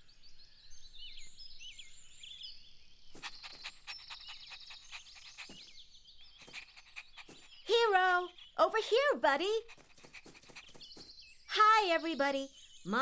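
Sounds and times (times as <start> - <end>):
birds chirping: 0.7 - 13.0
rapid short chirps or clicks: 3.2 - 5.7, 6.4 - 7.8, 9.6 - 11.1.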